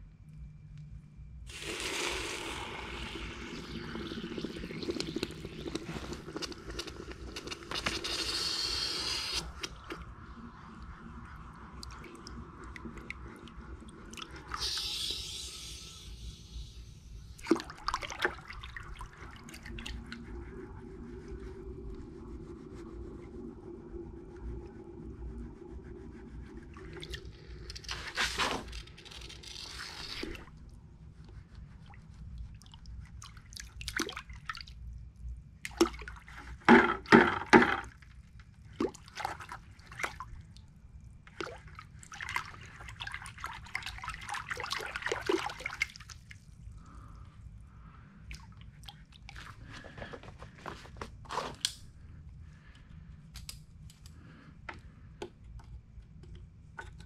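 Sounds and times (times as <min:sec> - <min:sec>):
water splashing and sloshing: 0:09.5 - 0:16.6, 0:17.2 - 0:22.0, 0:22.6 - 0:30.8, 0:31.5 - 0:51.7.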